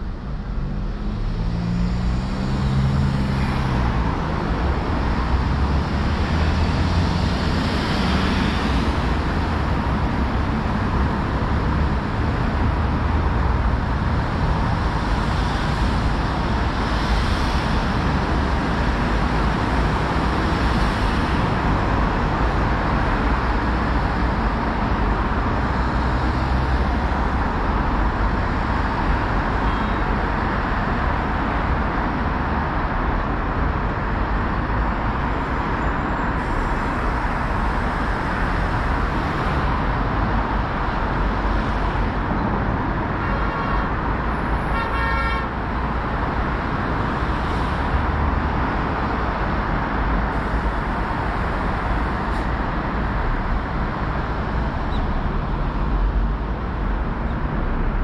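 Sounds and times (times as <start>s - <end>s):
road traffic: 0.0s - 58.0s
vehicle horn: 44.6s - 45.5s.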